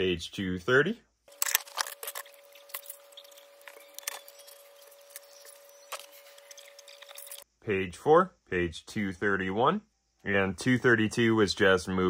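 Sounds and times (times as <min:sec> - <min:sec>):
faint hum: 0:01.3 - 0:10.6.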